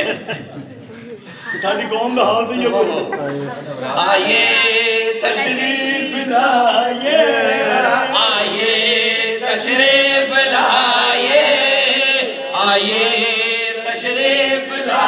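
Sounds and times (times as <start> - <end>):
man chanting into a microphone: 3.8 - 14.8.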